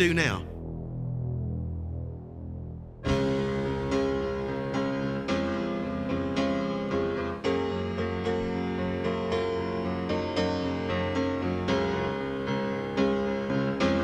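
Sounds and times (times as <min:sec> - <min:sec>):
keyboard notes over low chords: 0:00.0 - 0:06.8.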